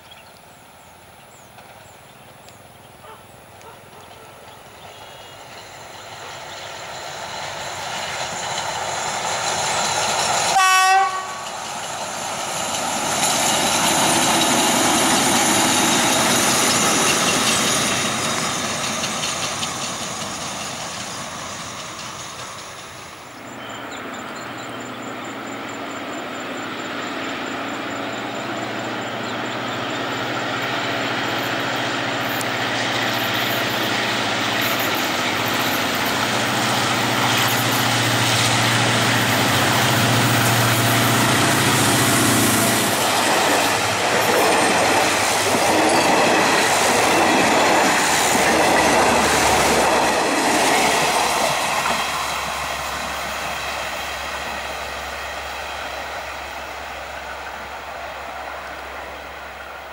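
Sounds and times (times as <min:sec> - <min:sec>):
express train approaching: 0:00.0 - 0:59.9
locomotive engine and wheels passing: 0:00.0 - 0:59.9
diesel locomotive engine running: 0:00.8 - 0:59.9
locomotive horn blast: 0:10.5 - 0:11.5.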